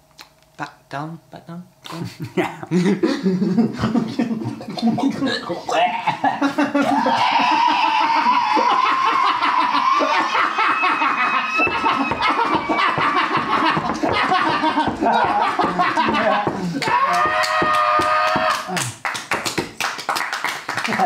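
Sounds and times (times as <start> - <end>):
people laughing hard: 2.7 - 18.8.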